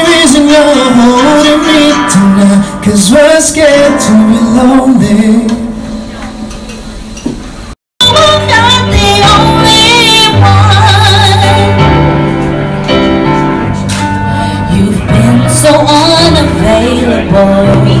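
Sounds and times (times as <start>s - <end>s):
man singing into a microphone: 0.0s - 5.8s, 14.6s - 18.0s
song with low accompaniment: 0.0s - 7.1s, 8.0s - 18.0s.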